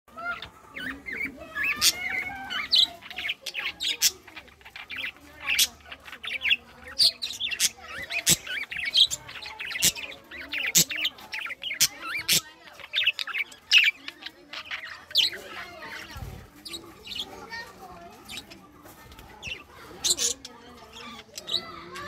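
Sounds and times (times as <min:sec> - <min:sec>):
budgerigars chattering: 0:00.1 - 0:22.0.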